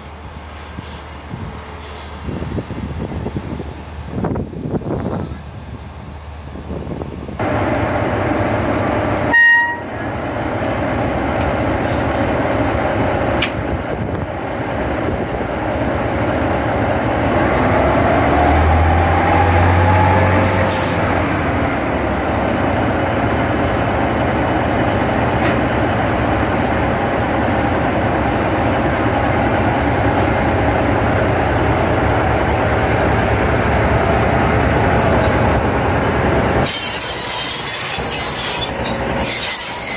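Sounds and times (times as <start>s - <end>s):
diesel locomotive engine running: 0.0s - 39.9s
locomotive horn toot: 9.3s - 10.1s.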